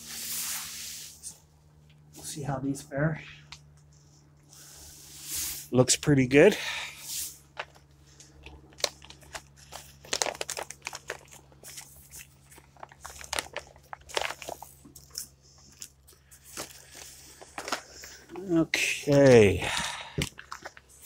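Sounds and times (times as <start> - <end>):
faint steady hum: 0.0 - 21.0
small crinkles and clicks: 7.6 - 18.5, 20.2 - 21.0.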